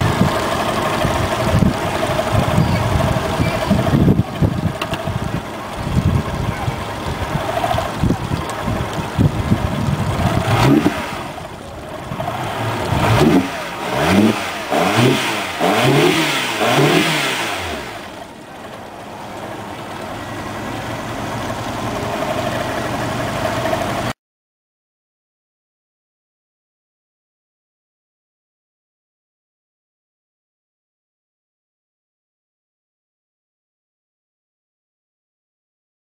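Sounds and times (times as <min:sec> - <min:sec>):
outboard motor revving and idling: 0:00.0 - 0:24.2.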